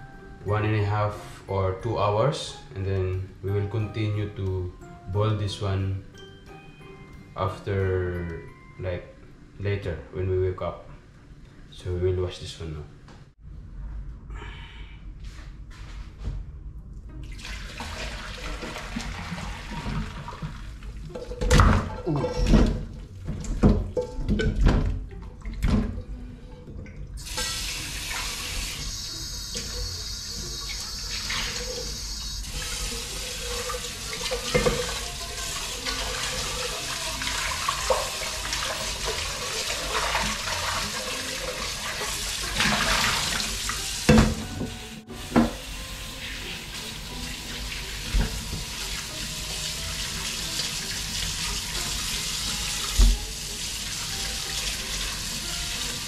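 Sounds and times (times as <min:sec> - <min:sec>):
washing by hand under water: 0:17.3 - 0:56.0.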